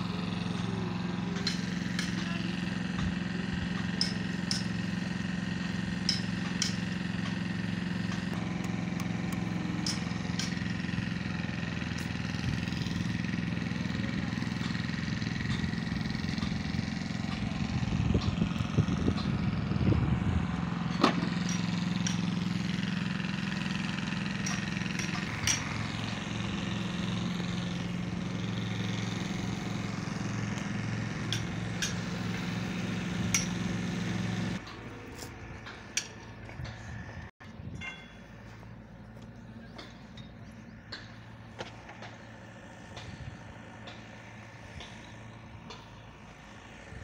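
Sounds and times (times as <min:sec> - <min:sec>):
engine idling: 0:00.0 - 0:47.0.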